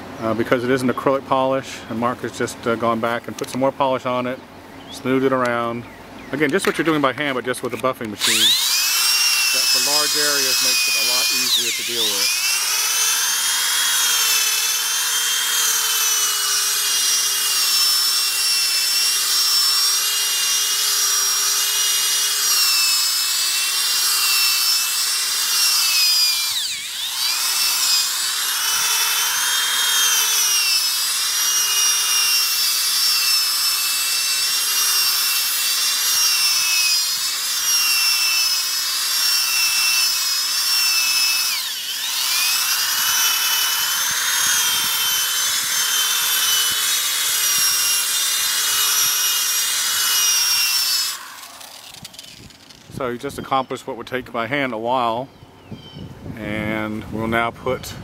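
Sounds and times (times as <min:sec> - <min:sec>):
electric buffer motor whining: 0:07.6 - 0:53.6
polishing pad hissing: 0:08.2 - 0:38.9, 0:39.6 - 0:52.8.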